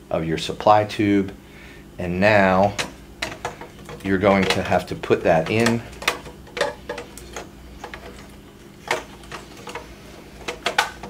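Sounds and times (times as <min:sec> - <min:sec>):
hard plastic parts clicking: 0:02.7 - 0:11.0.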